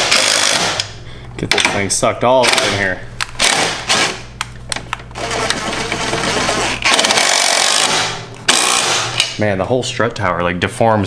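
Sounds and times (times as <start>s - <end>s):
impact driver hammering: 0.0s - 0.9s, 6.8s - 9.4s
impact driver spinning nuts: 0.0s - 0.9s, 3.4s - 4.2s, 5.2s - 9.2s.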